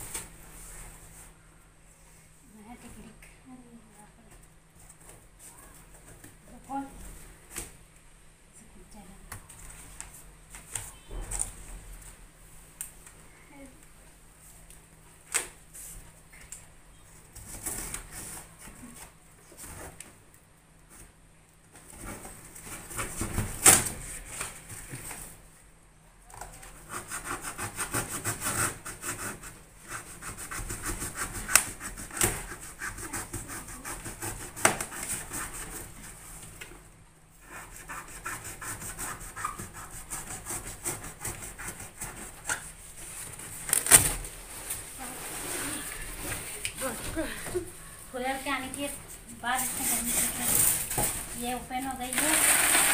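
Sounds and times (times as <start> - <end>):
cardboard ripping and scraping: 43.4 - 47.0, 49.5 - 52.9.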